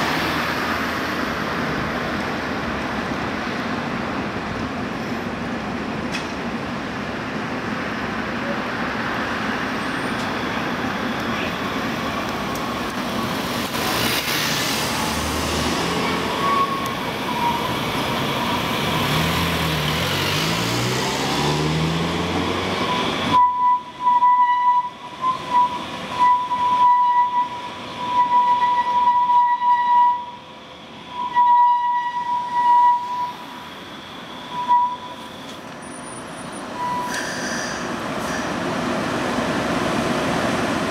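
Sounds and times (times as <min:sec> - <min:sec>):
light-rail car rushing noise: 0:00.0 - 0:40.9
high wheel squeal: 0:14.8 - 0:19.2, 0:22.5 - 0:30.3, 0:31.1 - 0:38.5.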